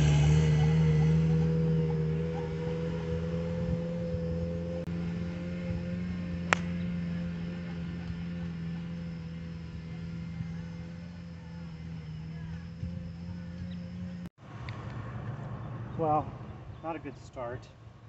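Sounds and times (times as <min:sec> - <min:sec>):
steady droning hum: 0:03.1 - 0:14.3
golf club striking ball: 0:06.4 - 0:06.9.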